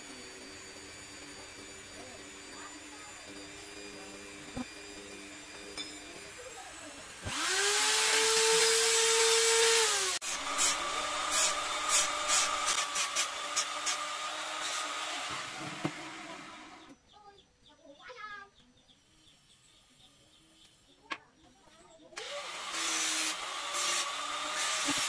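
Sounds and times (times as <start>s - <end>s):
sanding disc grinding wood: 0.0s - 16.8s, 22.2s - 25.0s
electric drill running: 0.0s - 16.9s, 22.2s - 25.0s.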